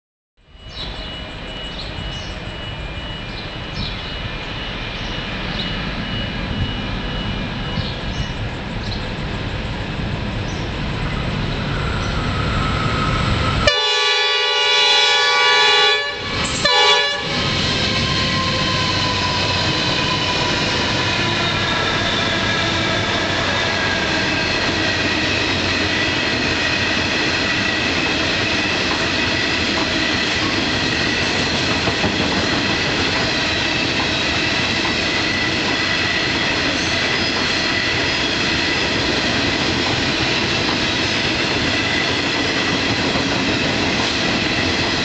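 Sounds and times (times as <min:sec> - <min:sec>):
freight train rumbling: 0:00.4 - 0:45.0
locomotive engine noise: 0:00.9 - 0:45.0
locomotive horn blasts: 0:13.6 - 0:17.5.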